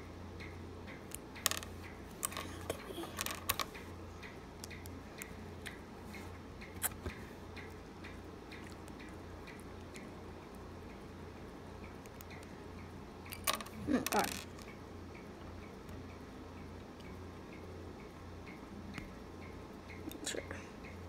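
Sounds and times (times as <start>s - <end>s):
faint regular ticking: 0.0s - 21.0s
plastic pieces clicking and knocking: 1.4s - 3.7s, 13.3s - 14.7s.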